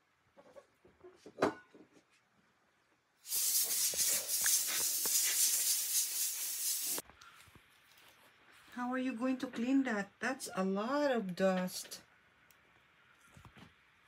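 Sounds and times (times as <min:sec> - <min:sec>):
compressed air spray hiss: 0:03.2 - 0:07.0.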